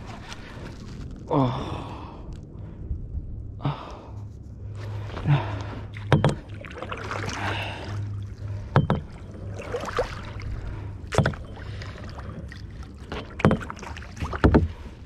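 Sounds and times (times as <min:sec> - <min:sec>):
steady low hum: 0:00.0 - 0:15.0
water lapping against kayak hull: 0:04.7 - 0:15.0
sharp knocks on hull: 0:06.1 - 0:06.5, 0:08.7 - 0:09.2, 0:11.1 - 0:11.5, 0:13.1 - 0:14.8.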